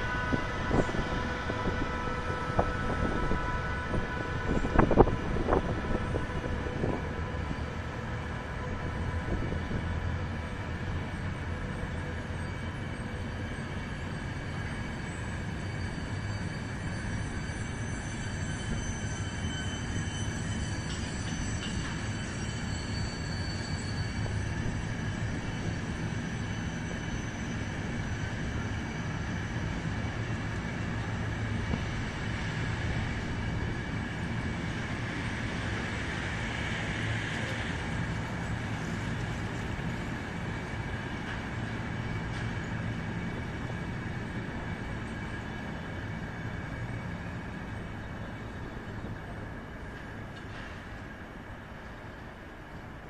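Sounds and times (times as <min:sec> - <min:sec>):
train wheels rumbling on rails: 0:00.0 - 0:53.0
thin high wheel squeal: 0:11.1 - 0:31.5.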